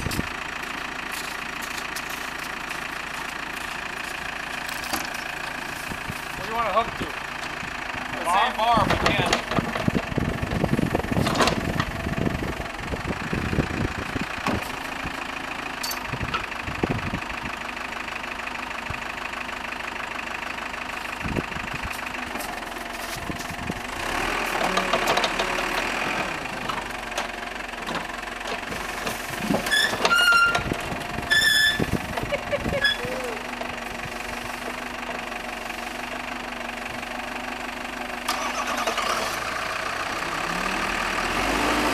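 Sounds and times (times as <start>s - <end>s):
tractor engine idling: 0.0s - 41.9s
short high squeaks: 29.6s - 30.7s, 31.3s - 32.0s, 32.8s - 33.1s.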